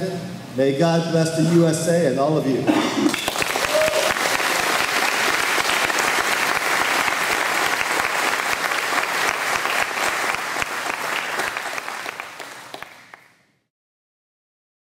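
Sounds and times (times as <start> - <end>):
audience applauding: 3.1 - 13.4.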